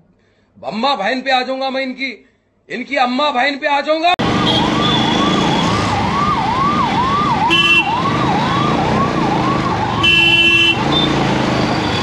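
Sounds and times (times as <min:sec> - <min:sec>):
electronic siren sweeping: 0:04.2 - 0:12.0
vehicle horn honking: 0:04.4 - 0:05.7, 0:07.5 - 0:08.0, 0:10.0 - 0:12.0.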